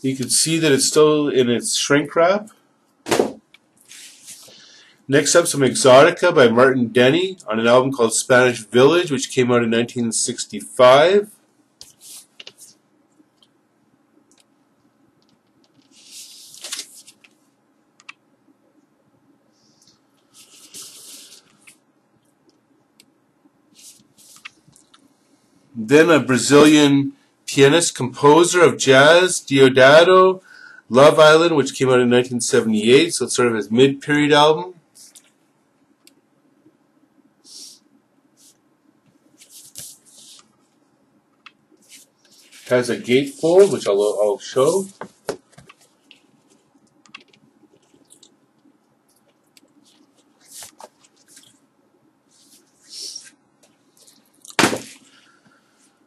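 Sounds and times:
cardboard record jacket rustling: 41.8 - 46.5.

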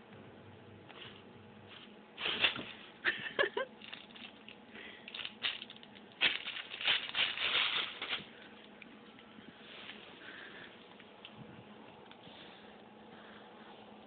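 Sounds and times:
plastic bag crinkling: 3.6 - 8.8.

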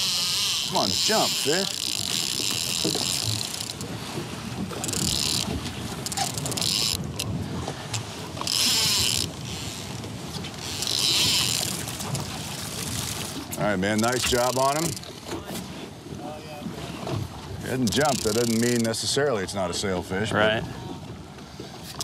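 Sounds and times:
fishing reel whirring: 0.0 - 7.3, 8.4 - 13.4, 14.2 - 15.1, 17.8 - 19.0.

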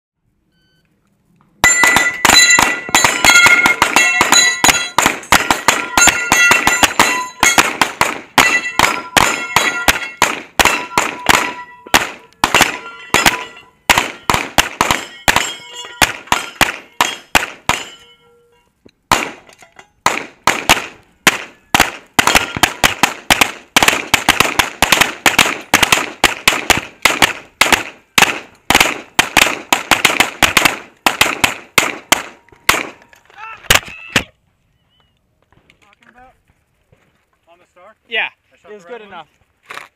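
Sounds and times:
steel targets ringing: 1.6 - 18.8, 22.2 - 22.9
rapid handgun fire: 1.8 - 17.9, 19.1 - 19.4, 20.0 - 33.0.

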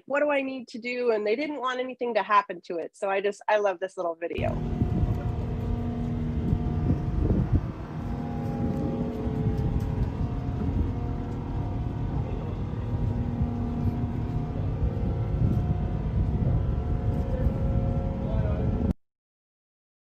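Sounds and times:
low machinery hum: 4.4 - 18.9
wind buffeting microphone: 4.4 - 18.9.

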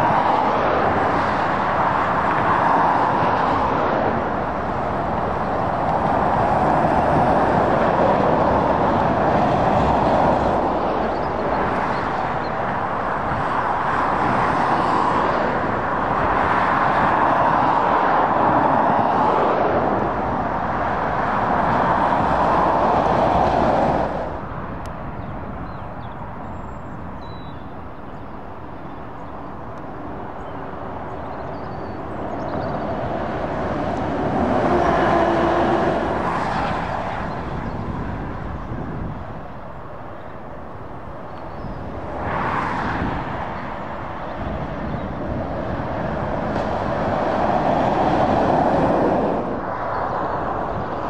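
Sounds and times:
road traffic passing at speed: 0.0 - 51.0.

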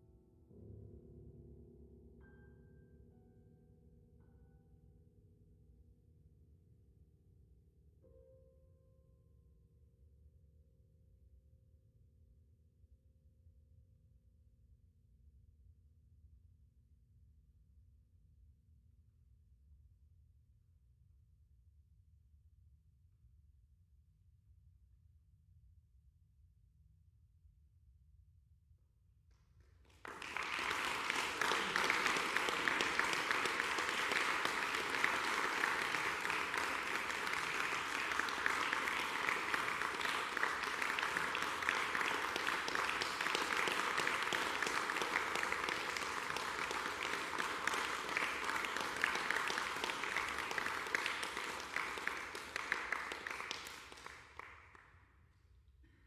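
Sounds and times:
audience applauding: 29.8 - 54.8.

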